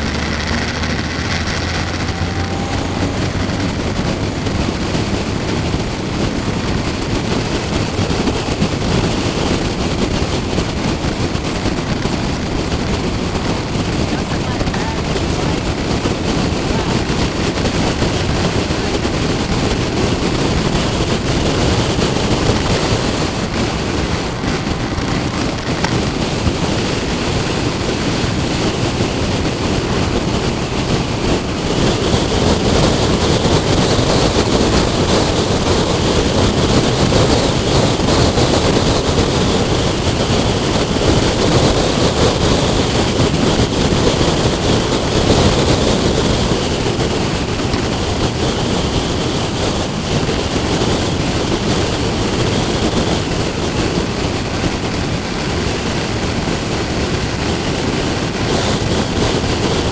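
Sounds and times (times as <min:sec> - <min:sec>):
motorcycle engine: 0:00.0 - 0:59.9
road noise: 0:00.0 - 0:59.9
wind rushing over microphone: 0:00.0 - 0:59.9.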